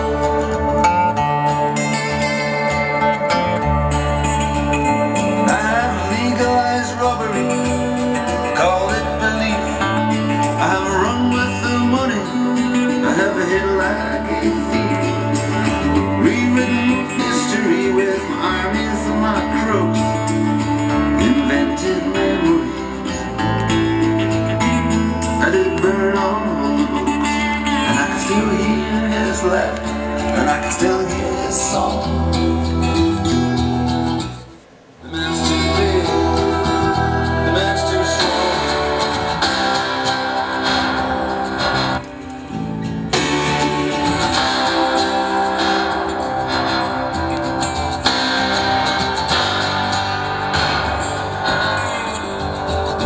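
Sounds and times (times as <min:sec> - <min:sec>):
bass line: 0:00.0 - 0:53.0.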